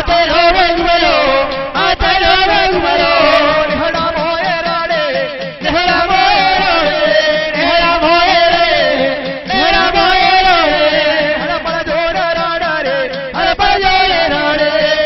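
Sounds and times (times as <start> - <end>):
steady beat: 0.0 - 15.0.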